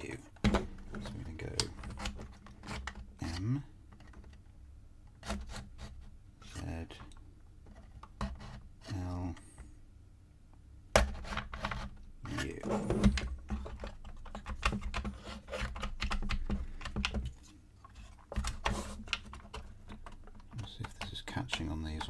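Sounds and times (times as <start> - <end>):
wooden clicks and knocks: 13.0 - 22.0.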